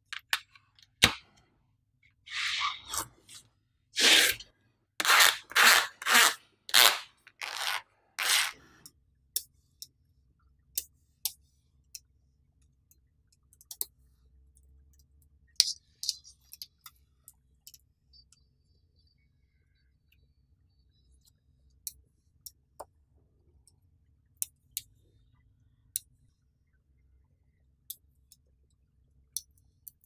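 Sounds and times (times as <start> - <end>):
plastic sheet scraping magnetic balls: 2.3 - 8.7.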